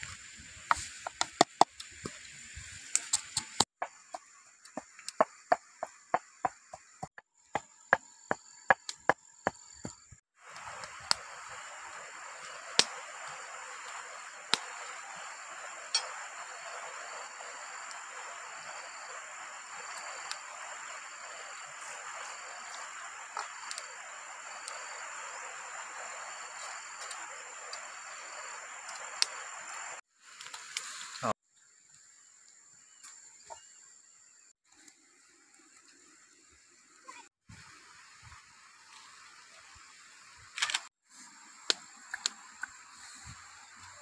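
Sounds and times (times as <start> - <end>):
steady hiss: 0.0 - 7.1, 8.4 - 31.3.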